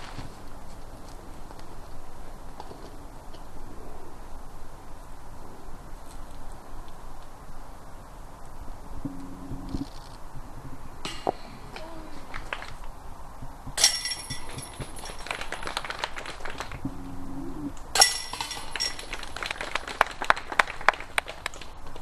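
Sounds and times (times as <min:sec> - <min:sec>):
discs striking basket chains: 0:13.8 - 0:15.3, 0:17.9 - 0:19.3
metal chains jingling and rattling: 0:13.8 - 0:15.3, 0:18.0 - 0:19.2.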